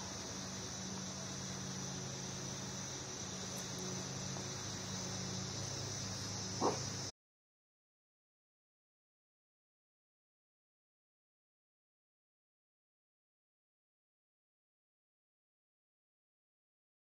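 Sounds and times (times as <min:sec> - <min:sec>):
crickets chirping: 0:00.0 - 0:07.1
low steady hum: 0:00.0 - 0:07.1.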